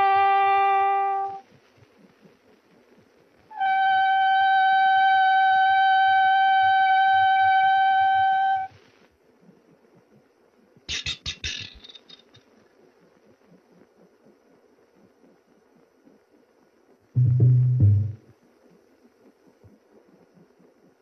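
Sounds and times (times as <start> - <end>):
long steady horn blast: 0.0 - 1.4.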